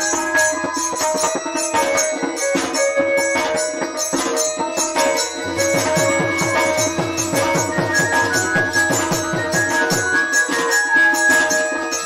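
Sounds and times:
hand drum strokes: 0:00.0 - 0:12.0
jingling percussion: 0:00.0 - 0:12.0
sustained melody line: 0:00.0 - 0:12.0.

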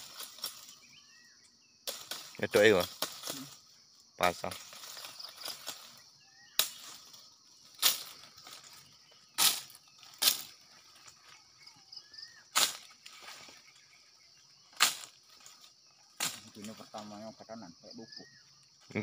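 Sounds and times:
machete chopping palm frond: 0:06.6 - 0:07.0, 0:07.8 - 0:08.1, 0:09.4 - 0:10.5, 0:12.6 - 0:12.9, 0:14.7 - 0:15.2, 0:16.2 - 0:16.6.

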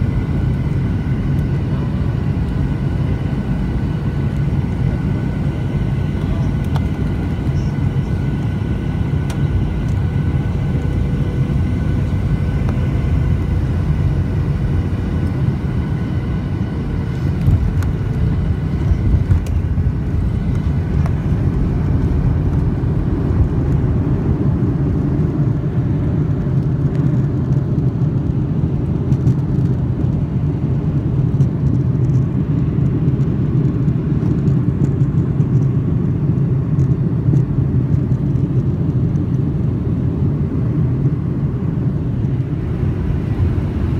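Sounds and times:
faint whining tones: 0:00.0 - 0:25.8
jet engine drone: 0:00.0 - 0:43.9
plane rolling on runway rumble: 0:00.0 - 0:43.9.

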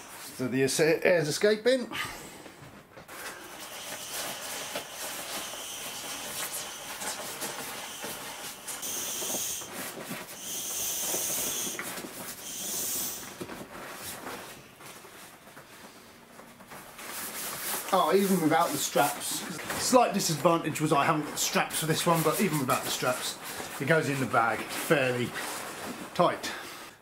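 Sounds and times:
nylon rustling: 0:02.8 - 0:27.0
air hissing out of a valve: 0:03.4 - 0:09.8, 0:10.4 - 0:13.4.

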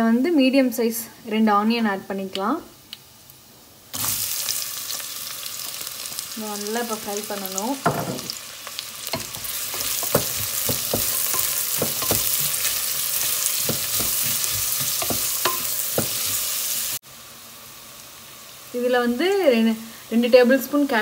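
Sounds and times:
onions sizzling in oil: 0:02.2 - 0:21.0
spatula knocking against pot: 0:09.2 - 0:16.4.

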